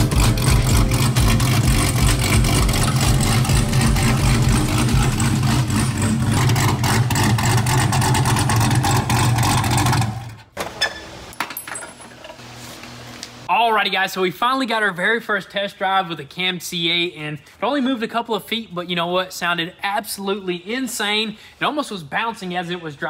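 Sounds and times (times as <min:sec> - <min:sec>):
car engine with choppy idle: 0:00.0 - 0:10.2.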